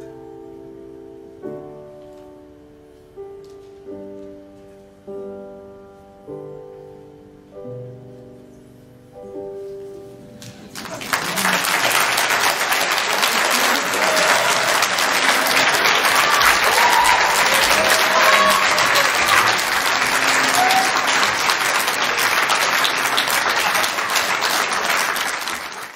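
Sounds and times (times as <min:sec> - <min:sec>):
audience applauding: 0:10.4 - 0:25.9.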